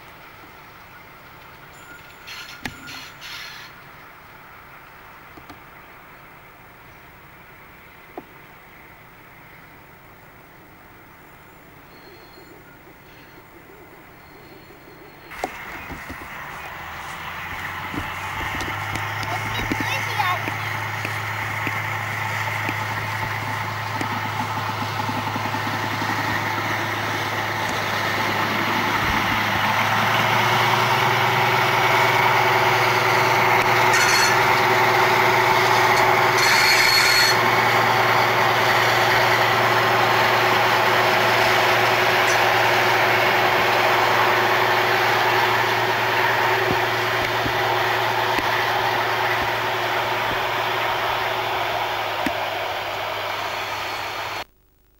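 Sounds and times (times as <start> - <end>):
train engines droning: 0.0 - 54.5
wheels on rails: 14.2 - 54.5.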